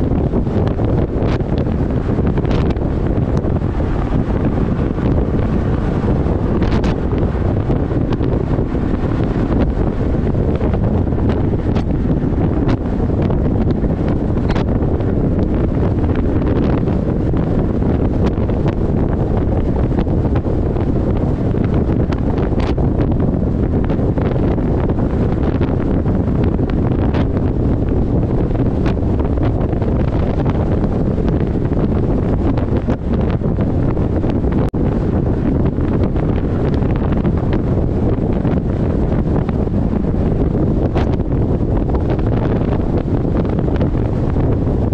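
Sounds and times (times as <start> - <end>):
car road and tyre noise: 0.0 - 44.9
wind on microphone: 0.0 - 44.9.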